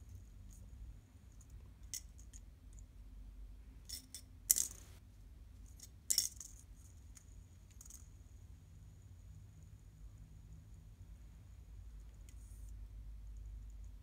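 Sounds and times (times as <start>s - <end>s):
fidget spinner rattling on tile: 3.9s - 5.0s, 5.7s - 8.1s.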